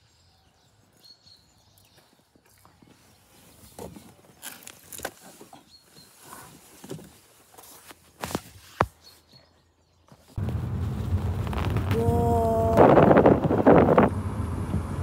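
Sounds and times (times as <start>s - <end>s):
wind noise on microphone: 10.4s - 15.0s.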